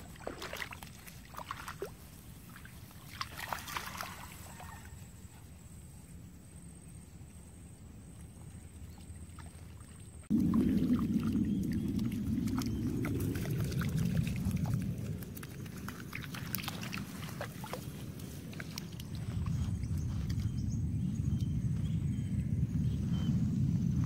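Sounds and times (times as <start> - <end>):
dog splashing in water: 0.0 - 4.9, 9.3 - 19.5
loud low rumbling: 10.2 - 17.1, 17.9 - 24.0.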